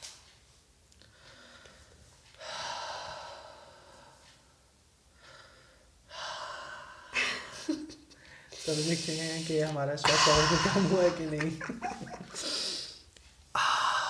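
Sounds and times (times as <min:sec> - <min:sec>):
person breathing deeply: 0:01.0 - 0:04.2, 0:08.2 - 0:11.4, 0:12.3 - 0:14.0.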